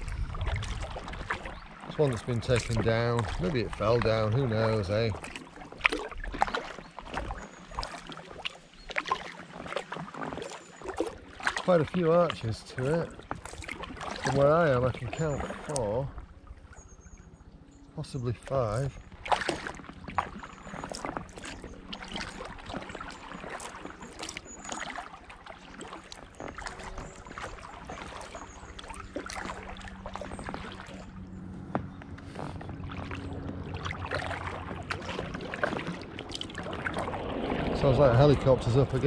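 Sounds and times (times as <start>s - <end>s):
kayak paddle splashing: 0.0s - 39.0s
distant helicopter drone: 27.0s - 39.0s.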